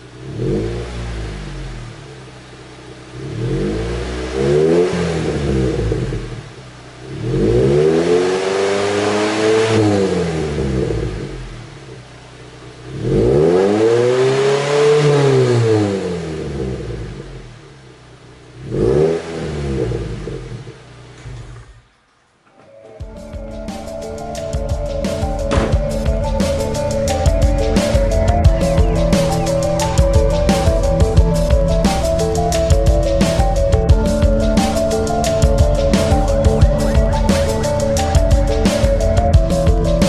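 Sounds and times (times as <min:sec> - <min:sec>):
car engine revving: 0:00.0 - 0:40.0.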